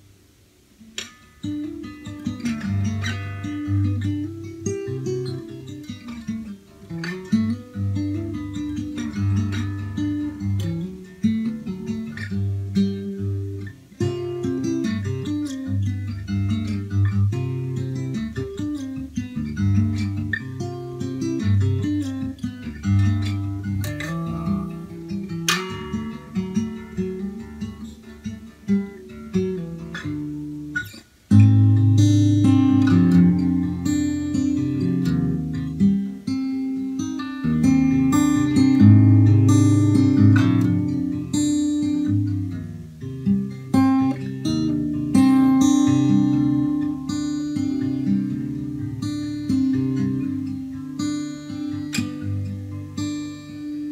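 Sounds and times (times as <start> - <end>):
fingerpicked acoustic guitar: 0.0 - 53.9.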